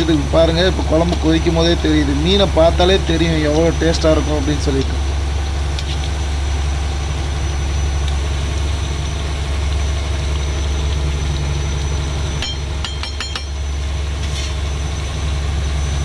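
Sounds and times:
boat diesel engine running: 0:00.0 - 0:16.0
ringing metallic clicks: 0:12.4 - 0:13.6.

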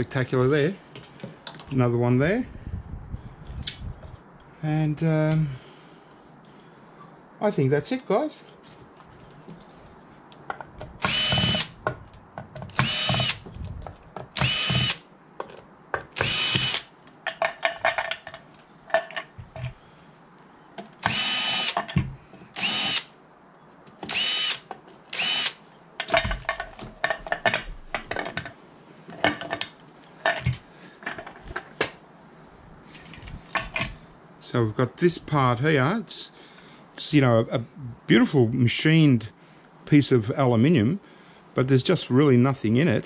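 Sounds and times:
power drill whining: 0:11.0 - 0:11.8, 0:12.7 - 0:13.4, 0:14.4 - 0:15.0, 0:16.2 - 0:16.9, 0:21.0 - 0:21.8, 0:22.6 - 0:23.1, 0:24.0 - 0:25.6.

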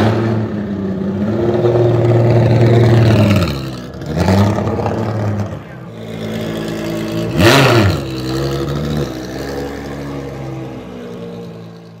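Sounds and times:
race car engine idling: 0:01.9 - 0:09.8.

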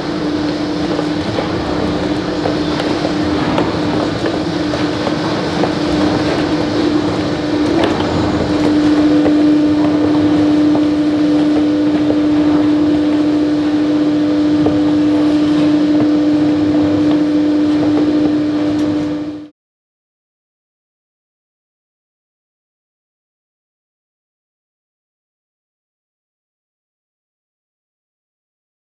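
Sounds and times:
electric machine humming: 0:00.0 - 0:19.5.

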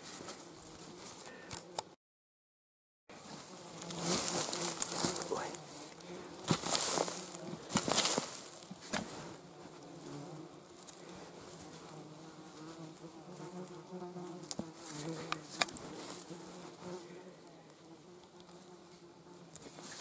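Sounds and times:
hands digging in stony soil: 0:03.2 - 0:09.3
flying insects buzzing: 0:03.2 - 0:20.0.

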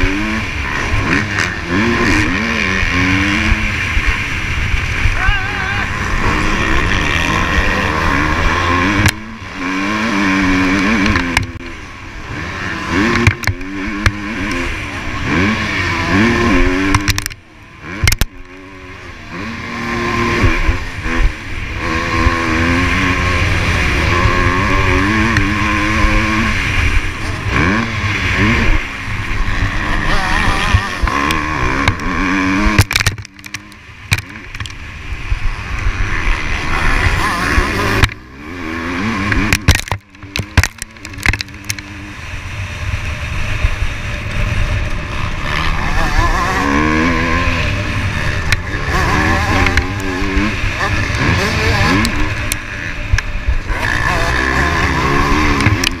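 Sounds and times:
motocross bike engine revving: 0:00.0 - 0:56.0
knocks from rough ground: 0:39.4 - 0:41.8.

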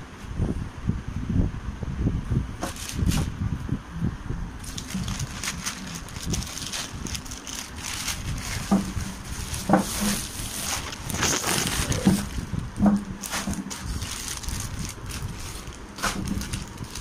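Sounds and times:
plastic bag crinkling: 0:04.6 - 0:17.0.

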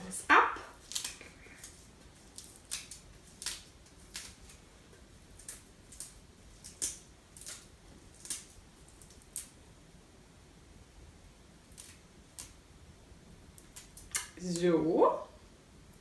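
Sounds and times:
kale leaves tearing and snapping: 0:00.8 - 0:09.6, 0:11.6 - 0:12.6, 0:13.6 - 0:14.4.

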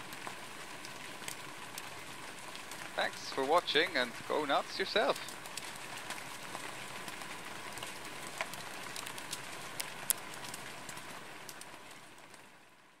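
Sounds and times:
fire hissing with crackles and pops: 0:00.0 - 0:13.0.

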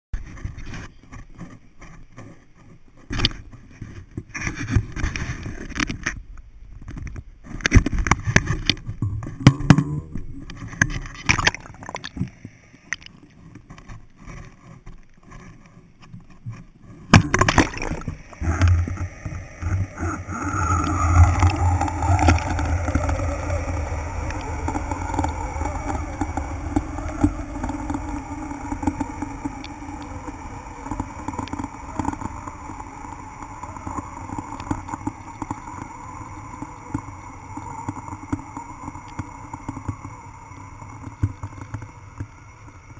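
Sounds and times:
muffled underwater rush: 0:16.5 - 0:42.9
splash into water: 0:17.2 - 0:18.1.

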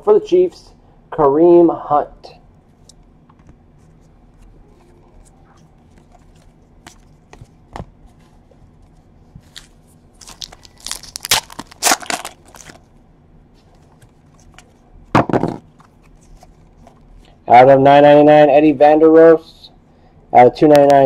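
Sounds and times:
foil pack crinkling torn open: 0:09.5 - 0:12.8.

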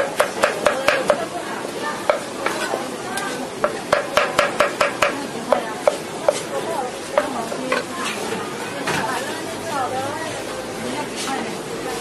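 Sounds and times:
cleaver knocking against wok: 0:00.0 - 0:01.2, 0:02.0 - 0:02.6, 0:03.6 - 0:06.4.

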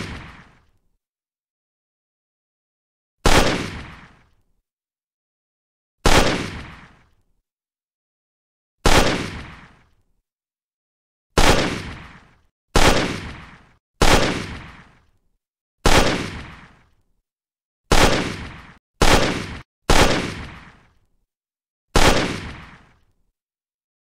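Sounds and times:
gunshots with echo: 0:03.2 - 0:04.0, 0:11.4 - 0:12.1, 0:12.8 - 0:14.8, 0:15.8 - 0:16.6, 0:17.9 - 0:20.8, 0:22.0 - 0:22.8.

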